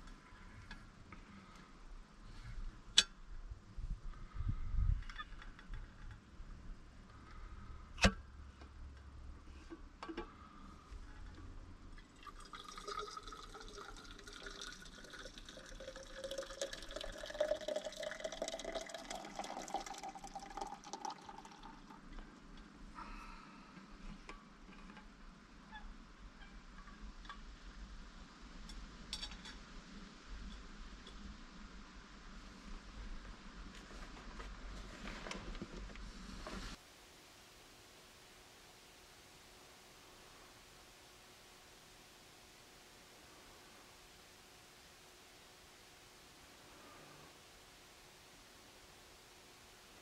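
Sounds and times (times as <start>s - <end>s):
liquid pouring into a cup: 12.0s - 22.2s.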